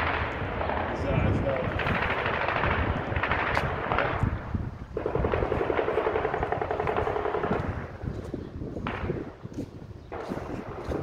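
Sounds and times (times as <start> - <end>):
automatic gunfire: 0.0 - 4.2, 5.0 - 7.9.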